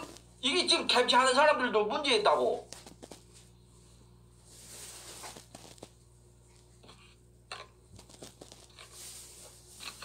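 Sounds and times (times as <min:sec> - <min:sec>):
faint rustles: 0:02.7 - 0:06.7.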